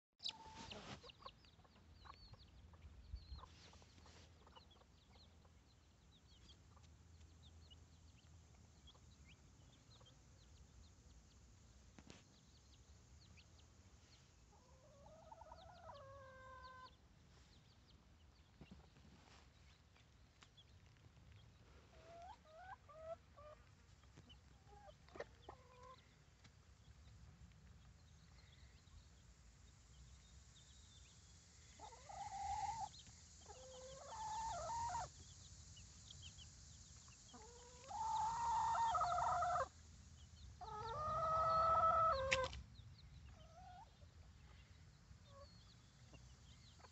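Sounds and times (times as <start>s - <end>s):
hens clucking: 0.2s - 5.6s, 14.5s - 17.0s, 21.9s - 23.7s, 24.5s - 26.0s, 31.8s - 35.2s, 37.2s - 39.8s, 40.6s - 42.6s
chicks peeping: 0.2s - 46.9s
hen drawn-out call: 37.4s - 39.7s.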